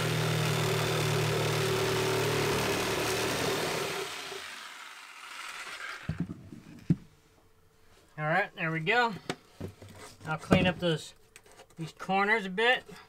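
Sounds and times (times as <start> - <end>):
jigsaw cutting: 0.0 - 6.3.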